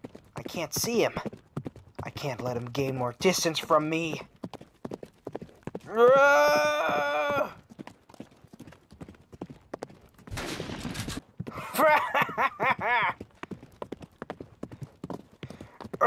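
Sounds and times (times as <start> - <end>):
horse hoofbeats galloping: 0.0 - 16.0
gunfire burst: 10.3 - 11.2
man cackling laugh: 11.5 - 13.2.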